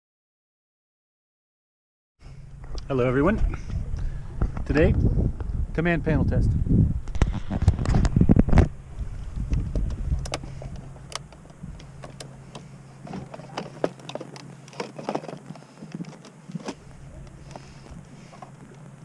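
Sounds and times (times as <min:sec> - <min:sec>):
small clicks and knocks of handling: 0:09.5 - 0:17.6.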